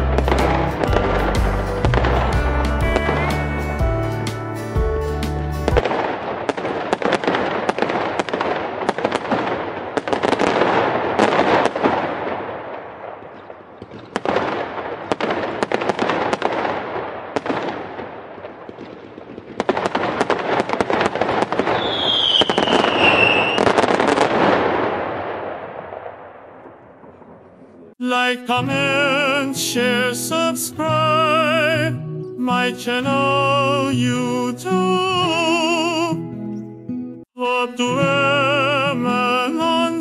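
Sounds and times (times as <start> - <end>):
fireworks crackling and banging: 0.0 - 3.8, 5.6 - 28.0
firework whistle: 21.6 - 24.2.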